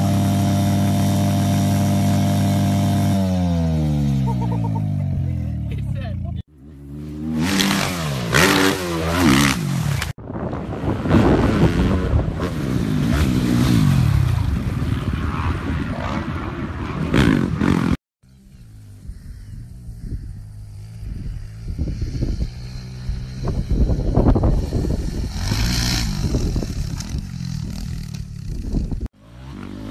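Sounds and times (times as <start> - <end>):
dirt bike engines revving: 0.0 - 29.9.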